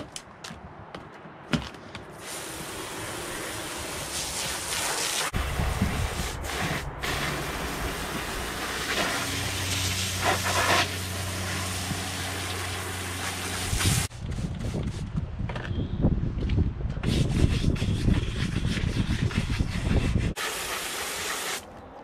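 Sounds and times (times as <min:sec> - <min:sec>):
hose water spraying on boots: 0:02.2 - 0:14.1, 0:20.3 - 0:21.7.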